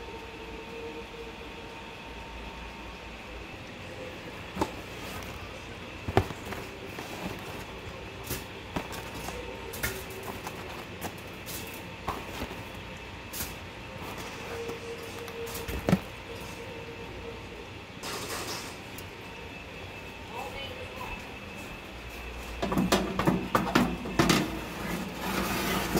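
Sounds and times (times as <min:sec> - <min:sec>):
background hum: 0:00.0 - 0:25.9
cardboard and packaging rustling: 0:04.5 - 0:16.6.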